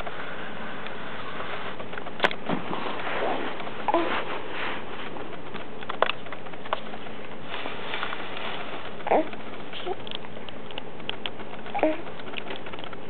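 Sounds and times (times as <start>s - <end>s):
light clicks and rustles: 0.0s - 13.0s
baby cooing softly: 3.9s - 4.3s, 9.0s - 10.1s, 11.7s - 12.1s.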